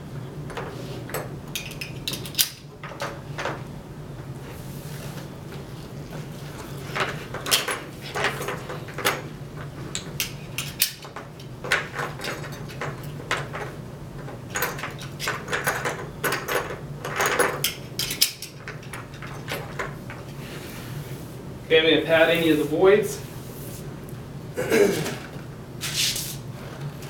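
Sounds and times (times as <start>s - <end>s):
buckles clicking and rattling: 1.5s - 3.6s, 6.9s - 20.3s.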